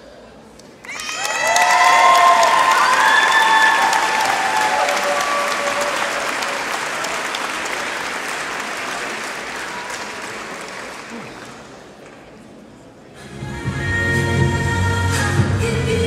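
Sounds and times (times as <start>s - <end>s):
audience applauding: 0.8s - 12.3s.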